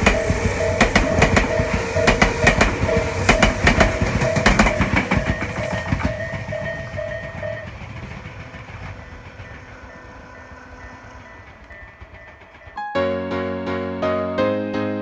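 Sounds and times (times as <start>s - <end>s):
level crossing bell ringing: 0.0s - 7.8s
train wheels clattering: 0.0s - 12.8s.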